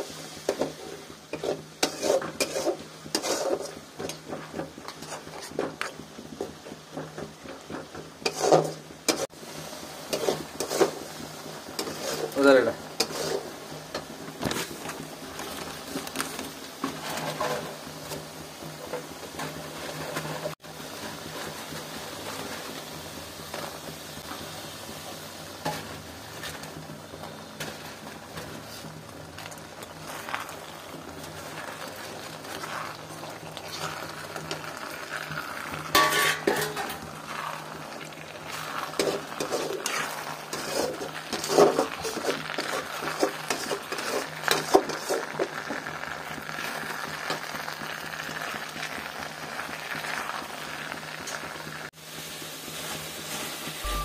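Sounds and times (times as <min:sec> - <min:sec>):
metal spatula scraping a pan: 0:00.0 - 0:09.3, 0:10.0 - 0:14.8, 0:16.8 - 0:18.2, 0:27.5 - 0:45.8
food sizzling in a wok: 0:00.0 - 0:54.0.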